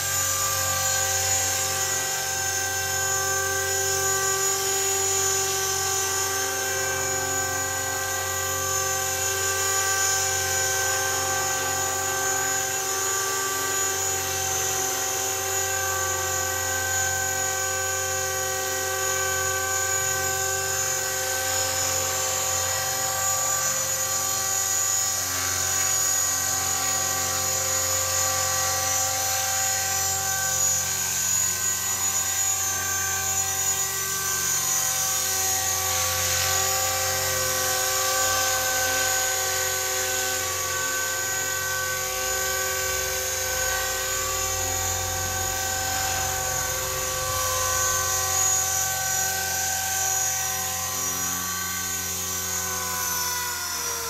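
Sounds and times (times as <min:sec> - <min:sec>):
rc helicopter motor whine: 0:00.0 - 0:54.0
rotor whirring: 0:18.7 - 0:53.8.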